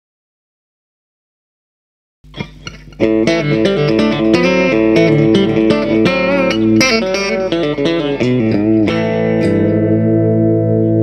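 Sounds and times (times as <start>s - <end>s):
electric guitar picking: 2.3s - 11.0s.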